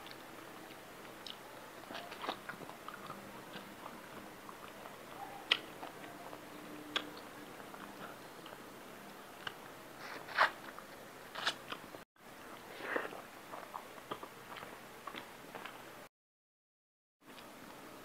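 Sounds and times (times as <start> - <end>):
close chewing and biting: 0.0 - 8.6, 12.6 - 15.8.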